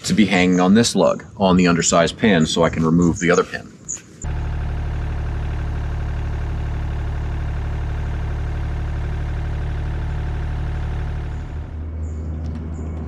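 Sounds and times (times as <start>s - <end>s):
excavator engine droning: 4.2s - 13.0s.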